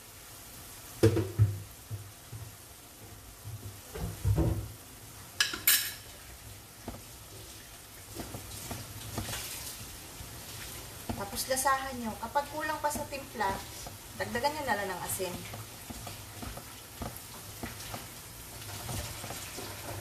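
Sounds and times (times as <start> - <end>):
faint sizzle: 0.0 - 20.0
utensil scraping a pan: 12.8 - 20.0.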